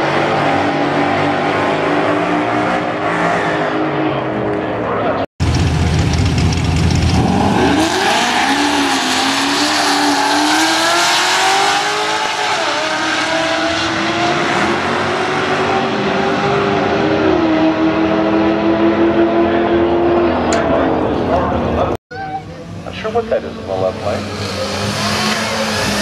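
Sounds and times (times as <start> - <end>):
car engines revving at full throttle: 0.0 - 22.0, 22.6 - 26.0.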